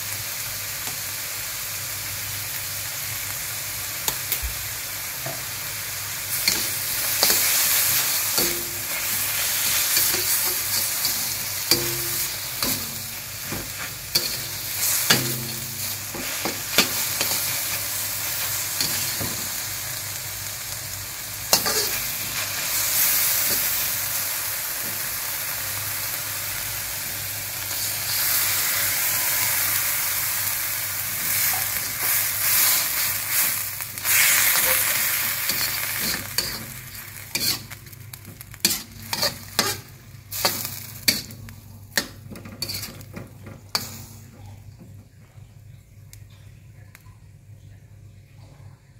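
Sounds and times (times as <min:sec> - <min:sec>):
food sizzling in a wok: 0:00.0 - 0:44.4
metal spatula scraping wok: 0:06.3 - 0:19.6, 0:21.5 - 0:23.8, 0:31.3 - 0:44.1.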